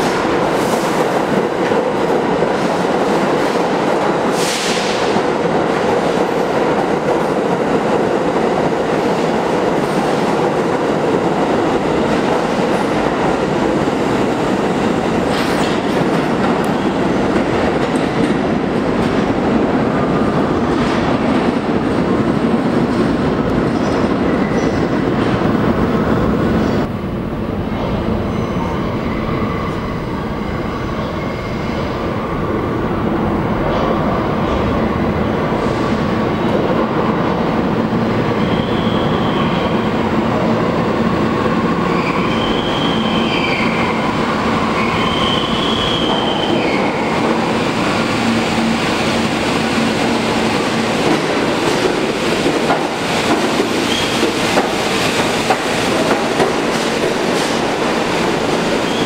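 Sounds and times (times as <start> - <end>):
subway train rumble: 0.0 - 59.0
train wheels squealing: 28.3 - 31.8, 38.3 - 39.9, 41.9 - 47.2, 53.8 - 54.4, 58.7 - 59.0.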